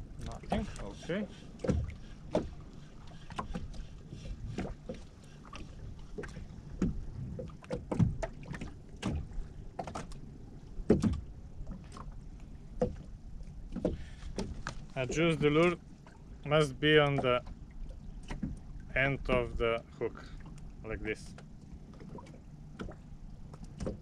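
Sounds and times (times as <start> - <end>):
knocks and splashes: 0.0 - 10.2, 10.8 - 20.6, 21.2 - 24.0
waves lapping against boat hull: 0.0 - 24.0
wind rumble on microphone: 5.9 - 9.7.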